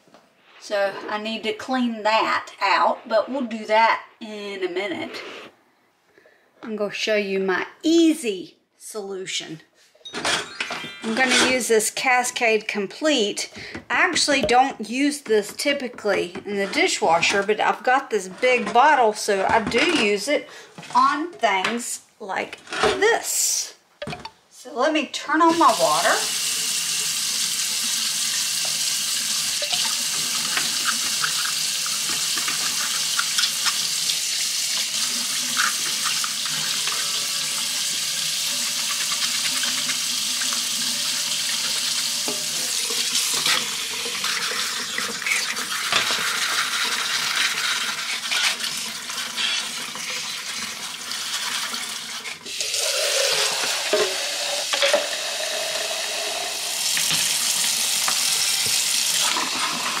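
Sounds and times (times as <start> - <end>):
faucet running into metal sink: 25.5 - 60.0
water filling plastic cup: 26.3 - 60.0.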